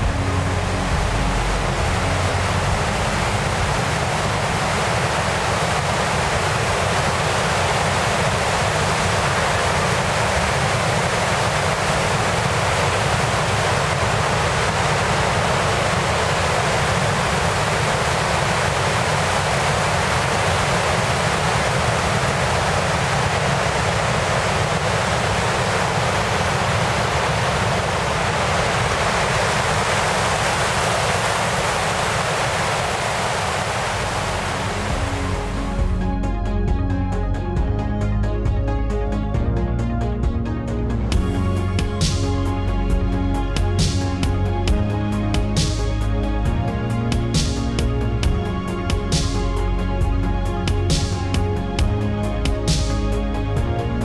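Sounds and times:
rushing whitewater: 0:00.0 - 0:35.9.

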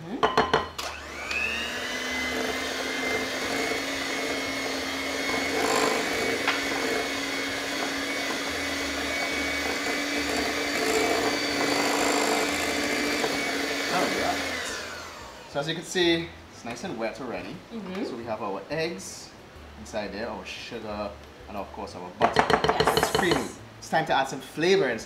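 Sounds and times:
electric hand mixer whining: 0:00.4 - 0:15.6.

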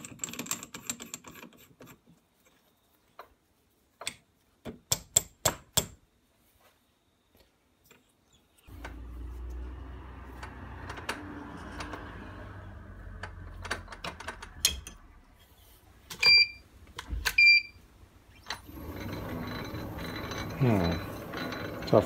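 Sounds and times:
low rumbling handling noise: 0:18.6 - 0:22.0.

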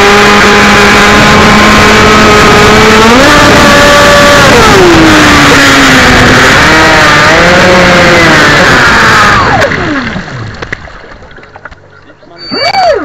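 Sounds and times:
electric motor whine: 0:00.0 - 0:10.2.

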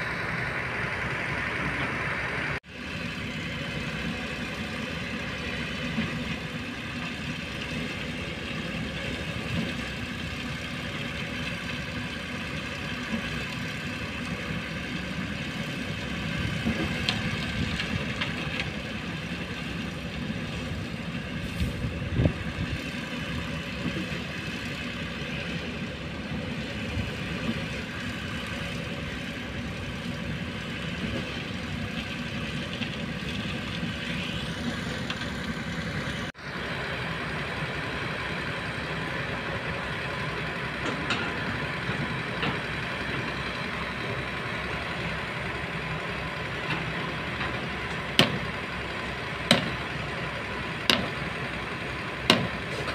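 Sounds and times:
diesel machinery running: 0:00.0 - 0:52.9.

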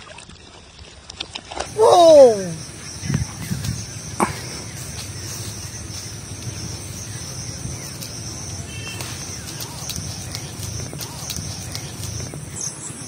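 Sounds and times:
insects trilling: 0:01.7 - 0:13.0
low rumbling noise: 0:01.7 - 0:13.0
faint clicks: 0:02.9 - 0:12.6.

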